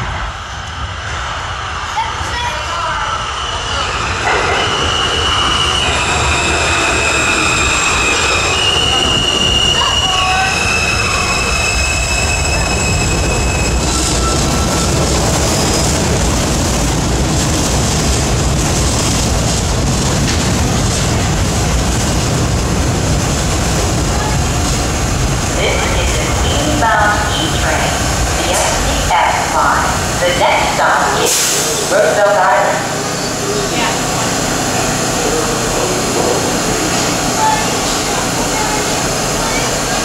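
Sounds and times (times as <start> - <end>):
subway train motors whining: 0.0 - 40.0
train brakes hissing: 3.8 - 16.0, 31.1 - 32.1.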